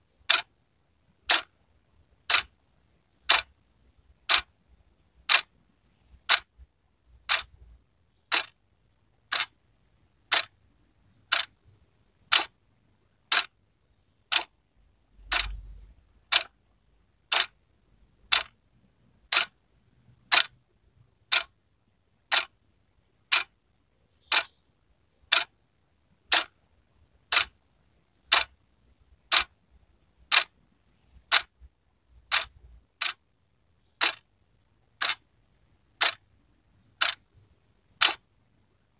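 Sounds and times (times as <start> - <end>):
wall clock ticking: 0.2 - 0.5, 1.2 - 1.6, 2.2 - 4.6, 5.2 - 8.6, 9.3 - 9.6, 10.2 - 12.6, 13.2 - 13.6, 14.3 - 14.6, 15.2 - 16.6, 17.2 - 17.6, 18.2 - 18.6, 19.2 - 20.6, 21.2 - 21.6, 22.2 - 22.6, 23.2 - 23.6, 24.2 - 24.6, 25.3 - 25.6, 26.2 - 26.6, 27.2 - 27.6, 28.2 - 28.6, 29.2 - 29.6, 30.2 - 33.3, 33.9 - 34.3, 34.9 - 36.2, 36.8 - 38.3.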